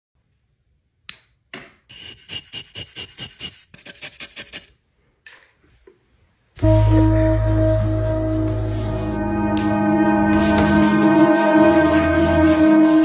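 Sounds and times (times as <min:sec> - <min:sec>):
charcoal rasping on sandpaper: 0:01.9 - 0:04.7, 0:10.4 - 0:13.0
music: 0:06.6 - 0:13.0.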